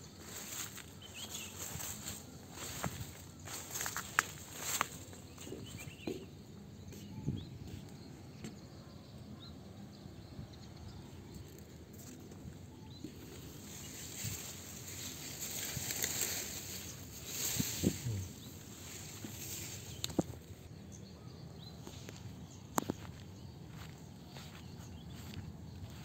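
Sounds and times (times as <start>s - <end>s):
leaves rustling against body: 0.0s - 5.9s, 11.5s - 20.7s
footsteps through undergrowth: 0.0s - 6.1s, 11.4s - 20.7s, 21.7s - 26.0s.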